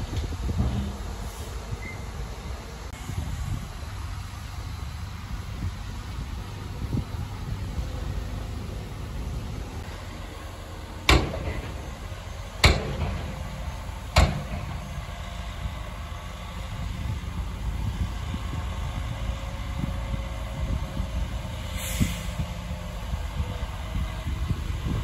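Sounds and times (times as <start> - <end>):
diesel engine rumbling: 0.0 - 25.0
loud bangs: 11.0 - 15.8
brief hiss: 21.7 - 22.4.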